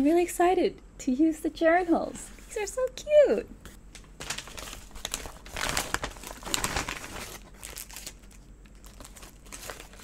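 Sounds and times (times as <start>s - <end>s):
packaging bag crinkling: 3.9s - 10.0s.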